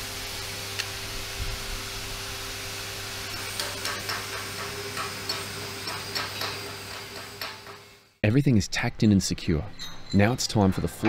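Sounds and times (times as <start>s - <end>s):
welding arc hissing and crackling: 0.0s - 8.2s
electrical hum: 0.0s - 11.0s.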